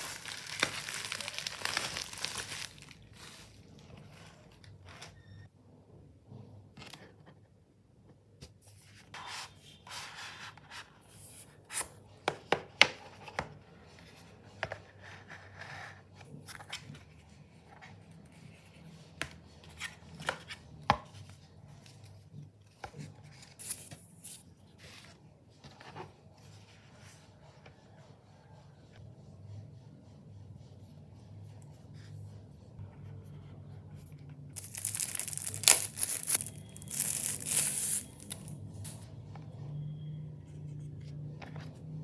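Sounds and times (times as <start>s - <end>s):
plastic wrapping rustling: 0.0s - 3.8s, 34.6s - 39.0s.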